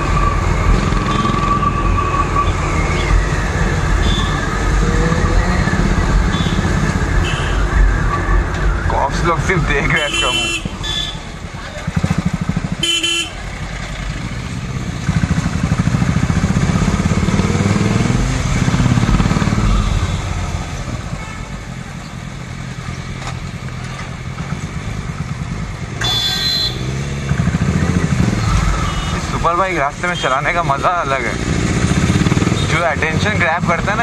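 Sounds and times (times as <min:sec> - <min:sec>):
street traffic: 0:00.0 - 0:34.0
vehicle horn honking: 0:04.0 - 0:04.4, 0:06.3 - 0:07.7, 0:10.0 - 0:11.3, 0:12.8 - 0:13.4, 0:26.0 - 0:27.0, 0:28.8 - 0:29.2
motorcycle engine running: 0:10.5 - 0:20.3.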